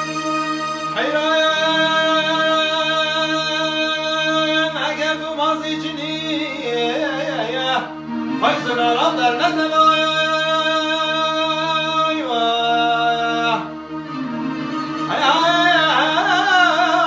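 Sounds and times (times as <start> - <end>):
man singing: 0.8 - 13.7, 15.0 - 17.0
electronic keyboard chords: 12.4 - 17.0.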